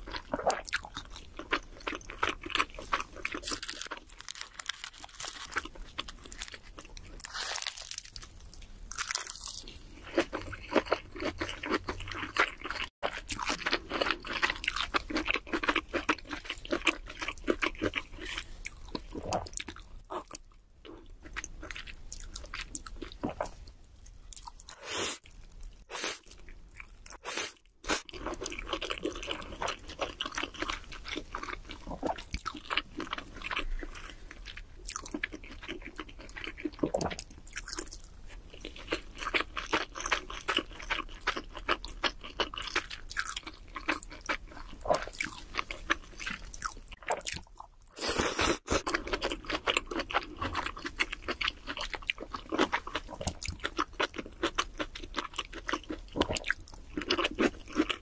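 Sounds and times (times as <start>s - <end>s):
person chewing food: 0.0s - 58.0s
crunchy bites: 0.4s - 19.8s.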